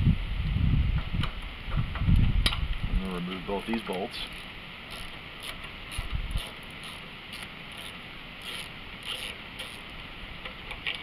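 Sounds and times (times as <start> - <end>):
wind noise on microphone: 0.0 - 3.3, 4.2 - 7.4.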